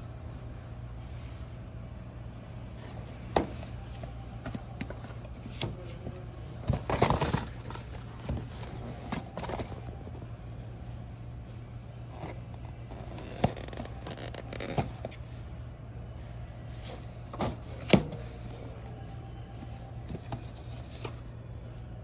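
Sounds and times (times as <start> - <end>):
steady low hum: 0.0 - 22.0
cardboard scraping and rustling: 2.8 - 10.2, 12.1 - 15.2, 16.7 - 18.6, 19.7 - 21.2
cardboard box knocks: 3.3 - 3.7.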